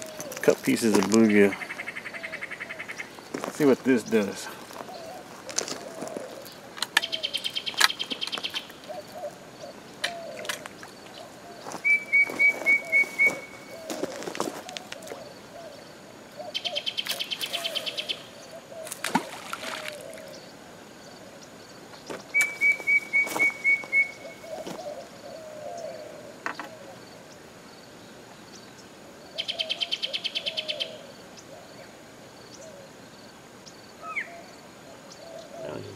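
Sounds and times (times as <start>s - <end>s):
low wavering bird calls: 0.0s - 27.5s, 28.5s - 33.0s, 33.6s - 35.9s
fast high bird trill: 11.8s - 14.0s, 22.4s - 24.6s.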